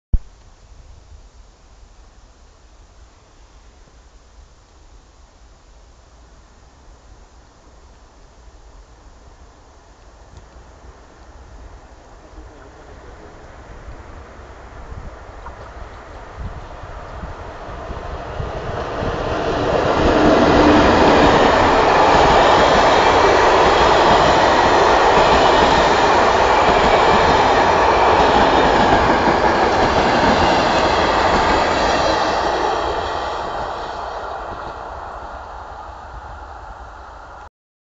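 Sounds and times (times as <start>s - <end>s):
train wheels rumbling on rails: 12.1s - 37.4s.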